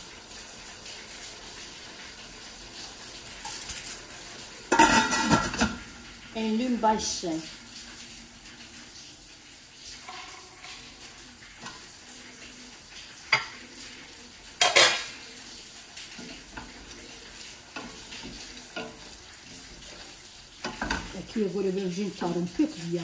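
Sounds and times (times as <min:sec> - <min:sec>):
chicken sizzling in sauce: 0:00.0 - 0:23.0.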